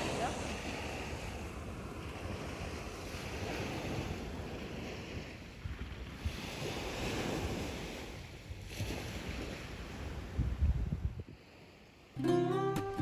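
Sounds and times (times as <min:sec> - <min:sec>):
wind buffeting microphone: 0:00.0 - 0:11.8
small waves washing onto sand: 0:00.0 - 0:12.8.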